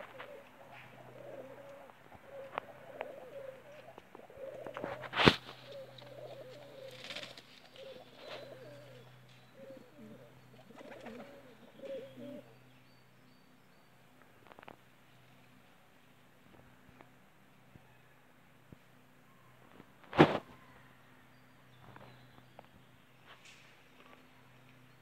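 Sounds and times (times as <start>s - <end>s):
pigeons cooing: 0.0s - 12.7s.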